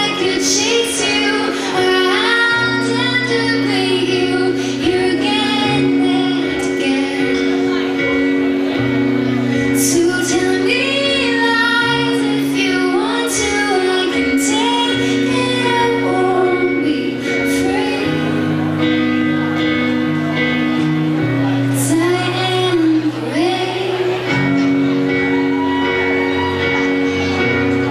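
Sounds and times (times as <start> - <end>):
woman singing: 0.0 - 8.3, 9.6 - 19.0, 21.7 - 24.6
rock band playing slow song: 0.0 - 27.9.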